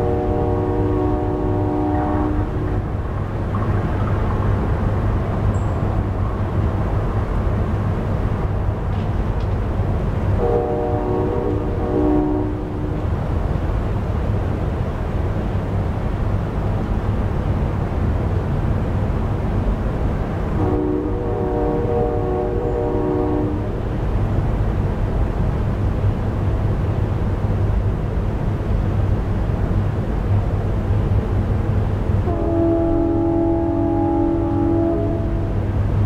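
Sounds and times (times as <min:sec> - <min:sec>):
distant train horn blast: 0:00.0 - 0:02.9, 0:10.4 - 0:13.0, 0:20.5 - 0:23.8, 0:32.2 - 0:35.7.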